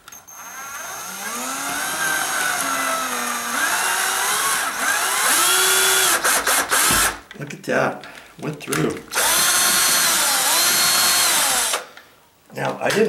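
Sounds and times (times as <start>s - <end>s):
cordless drill motor whining: 0.3s - 7.1s, 9.1s - 11.9s.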